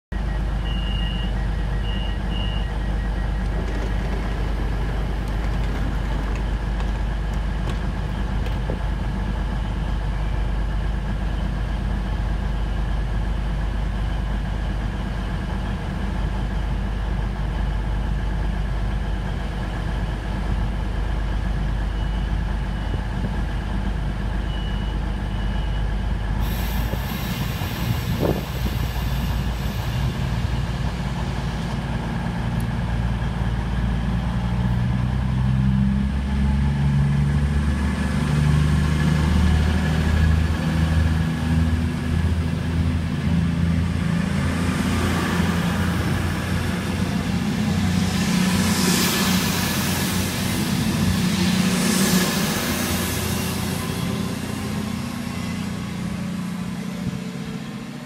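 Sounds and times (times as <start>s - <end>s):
diesel train engines humming: 0.1s - 58.0s
short high warning beeps: 0.3s - 3.4s
air hiss: 26.4s - 30.5s.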